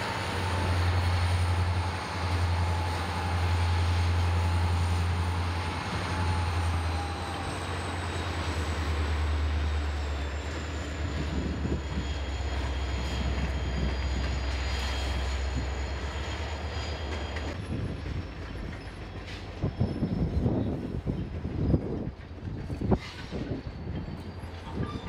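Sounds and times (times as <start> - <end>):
diesel locomotive engine drone: 0.0 - 25.0
rolling train wheels: 0.0 - 25.0
train wheel squeal: 0.0 - 25.0.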